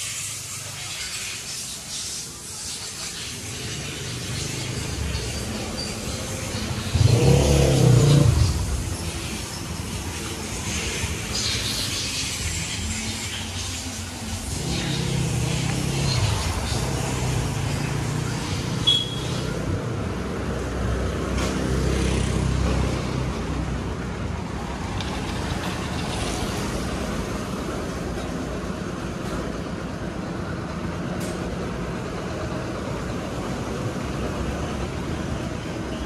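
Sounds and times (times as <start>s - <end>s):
vehicle engine running: 3.1s - 20.7s
short high beep: 18.9s - 19.3s.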